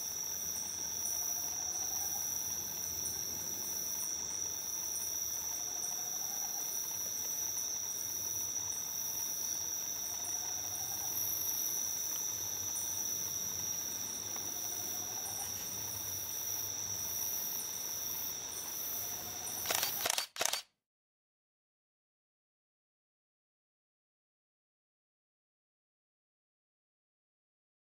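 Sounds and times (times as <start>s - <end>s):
insects trilling: 0.0s - 20.6s
loud clicks: 19.6s - 20.7s.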